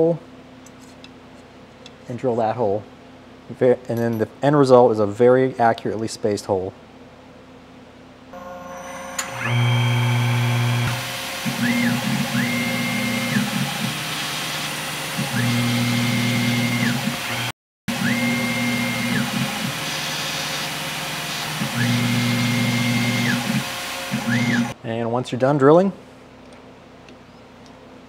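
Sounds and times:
axis motor whine: 8.4s - 24.8s
mill motors humming: 8.4s - 24.8s.

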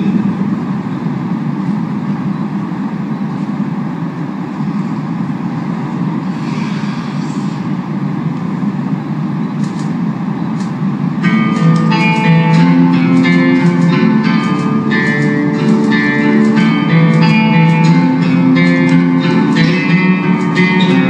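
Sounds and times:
arena ambience low rumble: 0.0s - 21.0s.

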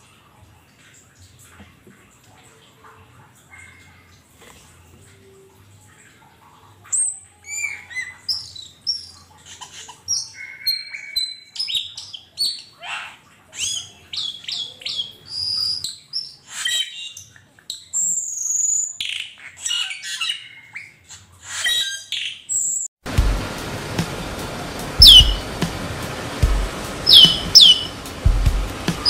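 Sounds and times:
flock of starlings chattering: 25.0s - 25.4s, 27.1s - 28.0s.

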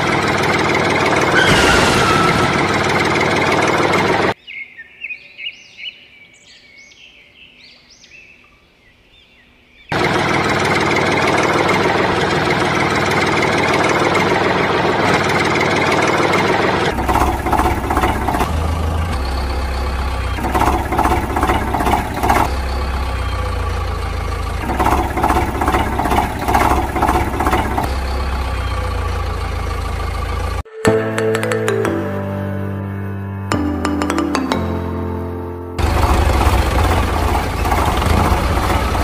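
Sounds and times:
tractor engine running: 0.0s - 4.4s, 9.9s - 30.7s, 33.5s - 39.0s.

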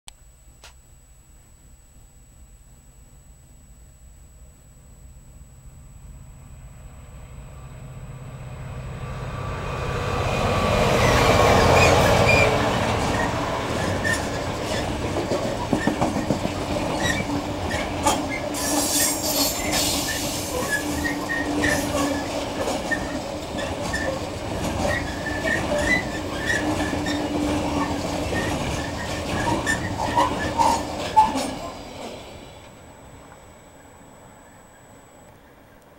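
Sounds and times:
diesel locomotive passing: 5.7s - 35.9s
wheel squeal: 11.0s - 31.7s
wagons rattling over rails: 11.0s - 31.9s.

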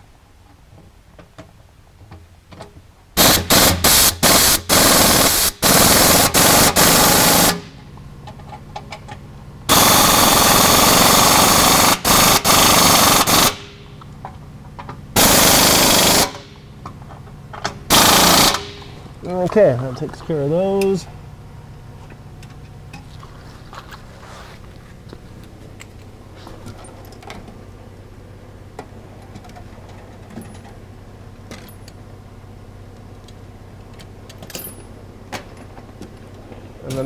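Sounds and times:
impact wrench hammering: 15.2s - 16.5s, 17.9s - 19.0s.

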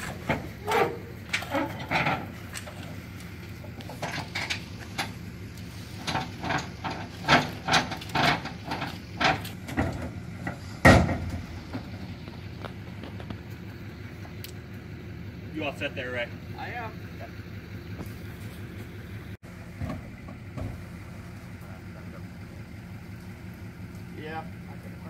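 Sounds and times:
vehicle engine idling: 0.0s - 25.0s
heavy thump: 9.7s - 11.9s.

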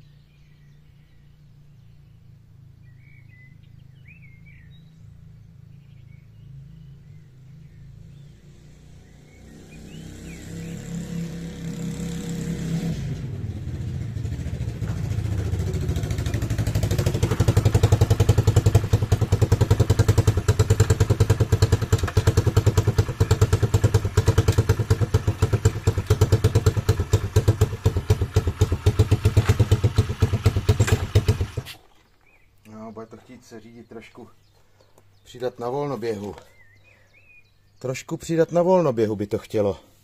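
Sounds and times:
motorbike engine running: 10.2s - 31.8s.

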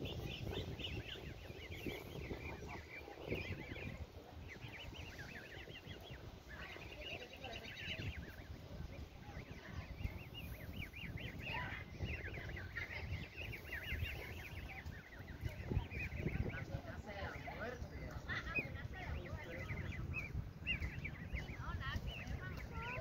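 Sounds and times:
goslings peeping: 0.0s - 23.0s.

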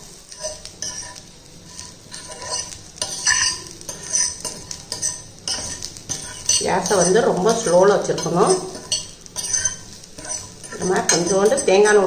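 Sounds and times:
food sizzling in a pan: 0.0s - 12.0s
scraping in a pan: 0.0s - 12.0s.

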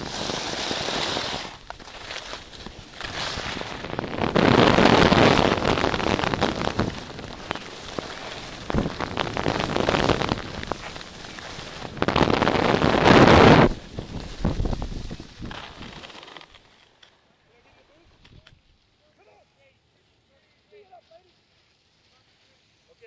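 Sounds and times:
skis scraping over snow: 0.0s - 16.9s.

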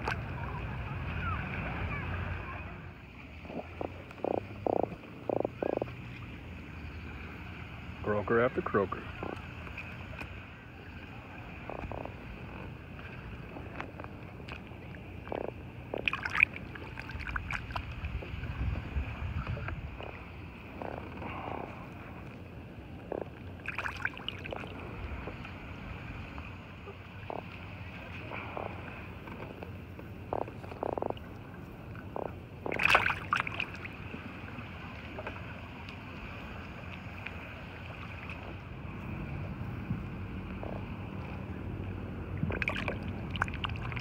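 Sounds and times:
fish grunting: 3.3s - 6.2s, 11.4s - 18.2s, 19.5s - 22.2s, 22.9s - 25.5s, 26.8s - 34.0s, 40.2s - 44.0s
fish low pulsing grunt: 3.3s - 6.2s, 18.5s - 22.2s, 26.8s - 33.7s
fish splashing into water: 15.9s - 18.1s, 23.6s - 24.7s, 32.6s - 34.0s, 42.4s - 44.0s.

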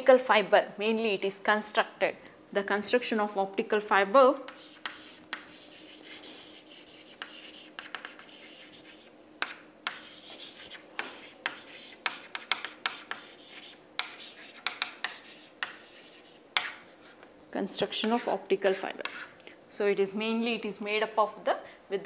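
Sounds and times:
chalk scratching on blackboard: 4.4s - 17.2s, 18.0s - 19.4s
chalk tapping on board: 4.5s - 17.2s, 18.0s - 19.3s.

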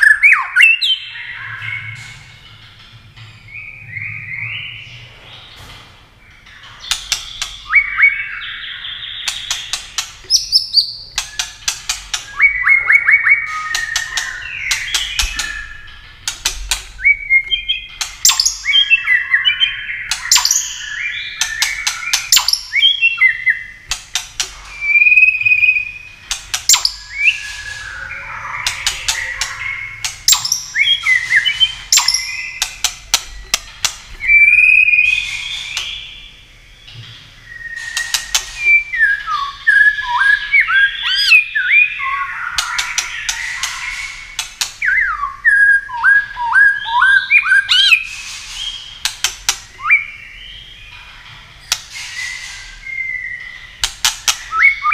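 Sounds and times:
bird singing whistled phrases: 0.0s - 2.0s, 7.3s - 9.6s, 12.3s - 15.9s, 17.0s - 23.8s, 24.7s - 26.1s, 26.7s - 32.7s, 34.2s - 36.3s, 37.4s - 48.9s, 49.8s - 50.8s, 52.0s - 53.8s, 54.4s - 54.9s
bird sharp clicks: 28.6s - 34.1s.

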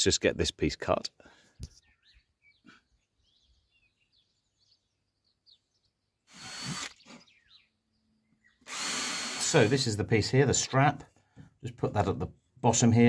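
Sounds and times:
faint bird chirps: 1.7s - 6.2s, 6.8s - 8.7s
cordless drill driving screw: 6.3s - 7.3s, 8.6s - 10.0s.

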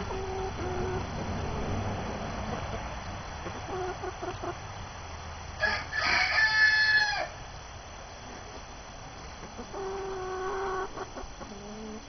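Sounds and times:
rooster crowing: 5.6s - 7.4s.

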